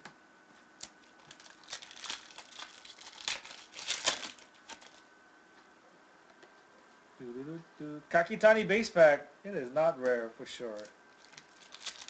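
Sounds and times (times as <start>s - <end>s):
foil wrapper crinkling: 0.8s - 5.0s, 10.7s - 12.0s.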